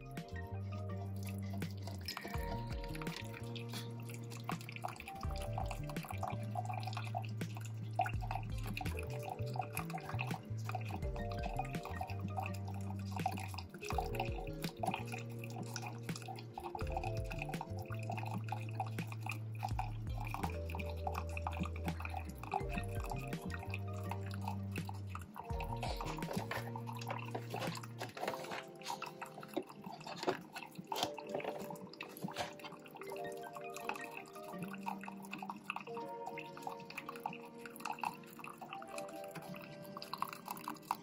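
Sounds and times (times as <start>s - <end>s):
background music with bass line: 0.0s - 28.2s
coffee maker trickling water: 0.0s - 41.0s
dripping clicks: 0.0s - 41.0s.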